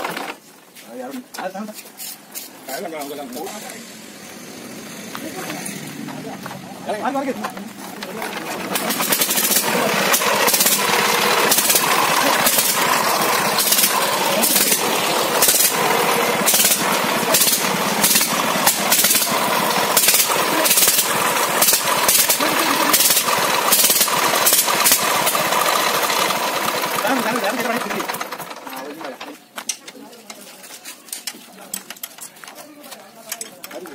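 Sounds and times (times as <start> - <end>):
single-cylinder engine knocking: 7.1 - 29.3.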